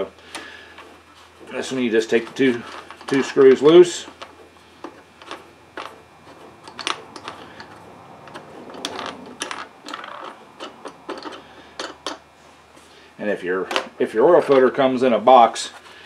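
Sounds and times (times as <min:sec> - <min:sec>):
screws being turned by hand: 0:01.5 - 0:12.2.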